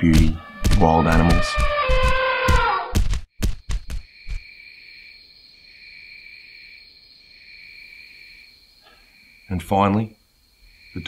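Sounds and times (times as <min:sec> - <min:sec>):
high insect trill: 0:03.4 - 0:11.0.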